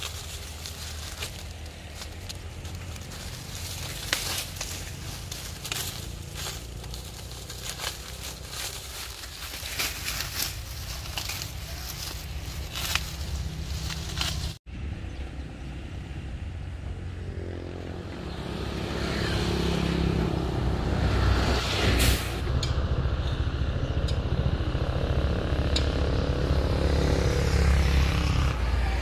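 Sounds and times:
vehicle engine running: 0:00.0 - 0:29.0.

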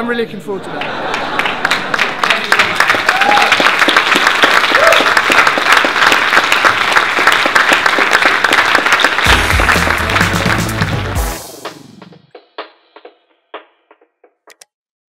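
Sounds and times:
audience applauding: 0:00.7 - 0:11.8
deep bass-heavy music sting: 0:09.3 - 0:11.5.

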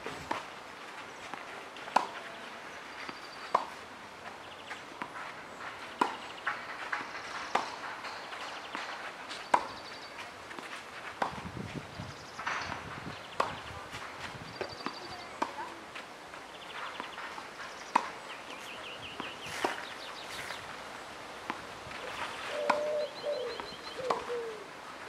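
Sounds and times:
footsteps: 0:00.0 - 0:22.8
tennis ball struck by racket: 0:01.9 - 0:02.2, 0:06.0 - 0:07.8, 0:10.5 - 0:11.4, 0:24.1 - 0:24.3.

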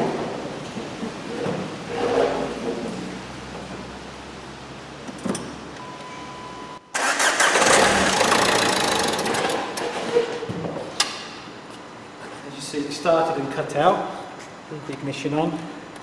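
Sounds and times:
diesel engine starting and running: 0:06.6 - 0:10.0.

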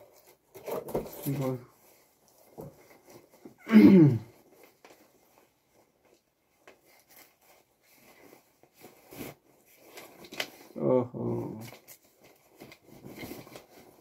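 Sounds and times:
bag rustling and crinkling: 0:04.3 - 0:10.8, 0:11.6 - 0:14.0.

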